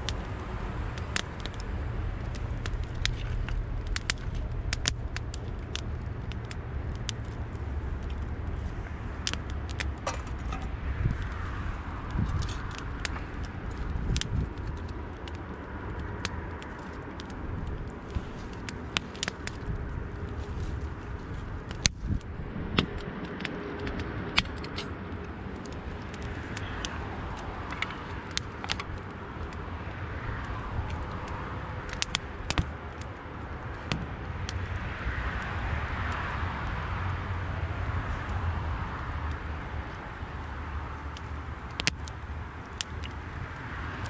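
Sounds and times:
low steady rumble: 0:00.0 - 0:14.6
wood fire crackling and popping: 0:00.0 - 0:44.0.

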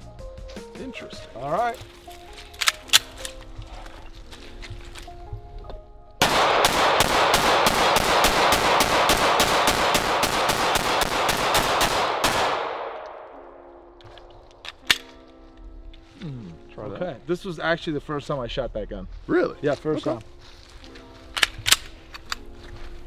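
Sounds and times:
pistol shots: 0:06.2 - 0:13.6.

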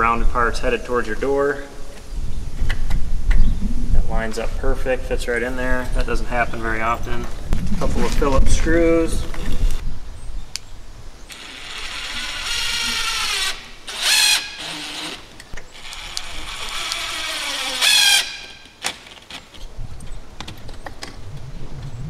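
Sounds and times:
cordless drill whirring: 0:11.3 - 0:18.8.

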